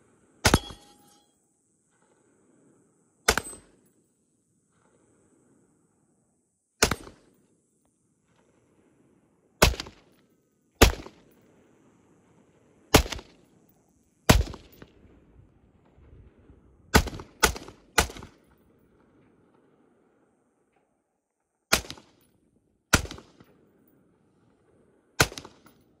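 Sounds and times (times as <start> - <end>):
rifle shots echoing: 0.4 - 1.1, 6.8 - 7.2, 9.6 - 10.0, 10.8 - 11.2, 12.9 - 13.3, 14.3 - 14.8, 16.9 - 18.4, 21.7 - 22.2, 22.9 - 23.5, 25.2 - 25.8.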